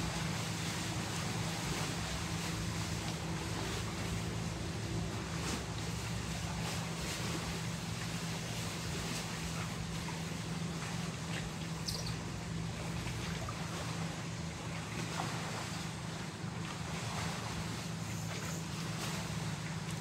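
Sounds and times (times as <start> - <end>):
low motor hum: 0.0 - 20.0
outdoor noise: 0.0 - 20.0.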